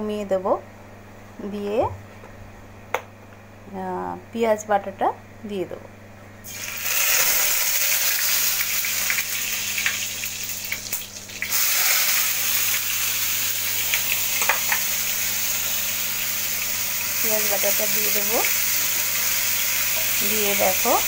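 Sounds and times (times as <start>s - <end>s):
onion paste sizzling in hot oil: 6.4s - 21.0s.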